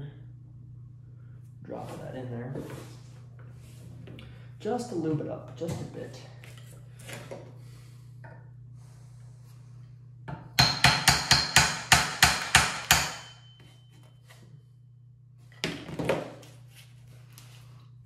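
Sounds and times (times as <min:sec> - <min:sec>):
steady low hum: 0:00.0 - 0:18.0
hammer tapping a punch: 0:10.6 - 0:13.4.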